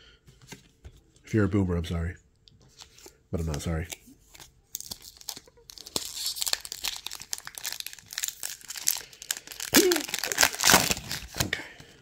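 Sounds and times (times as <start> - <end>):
foil wrapper crinkling and tearing: 4.3 - 11.6.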